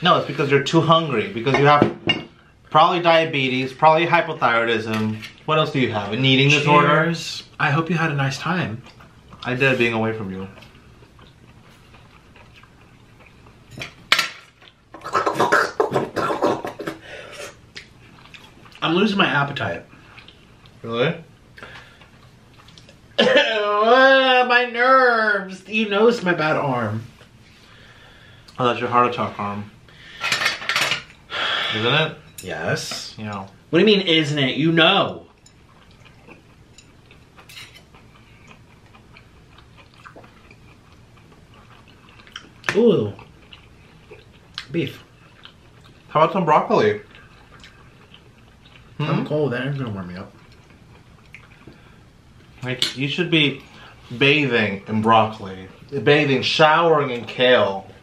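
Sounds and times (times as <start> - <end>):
dishes and cutlery clattering: 30.2 - 31.1.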